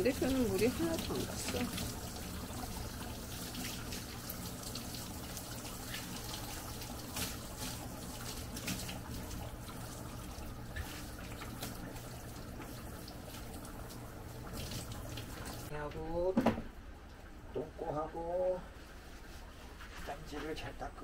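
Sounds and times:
shower head spraying water: 0.0 - 13.7
water splashing and dripping: 0.0 - 15.7.

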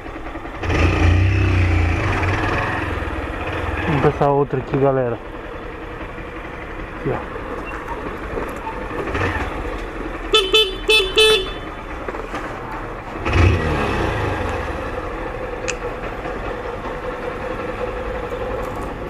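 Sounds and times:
motorcycle engine idling: 0.0 - 19.0
motorcycle horn beeps: 10.2 - 11.8.

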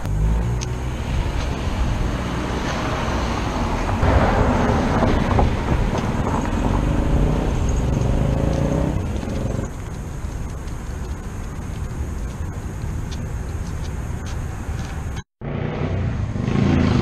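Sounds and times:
road noise: 0.0 - 17.0
vehicle engine running: 4.0 - 17.0.

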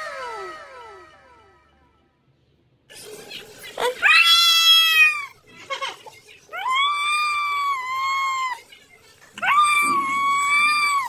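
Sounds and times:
cat meowing: 3.8 - 5.4, 9.4 - 11.0.

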